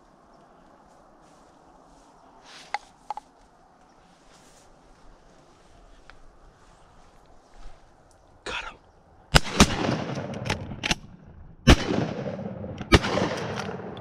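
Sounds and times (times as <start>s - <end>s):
shotgun blasts with echo: 9.3s - 11.0s, 11.6s - 14.0s.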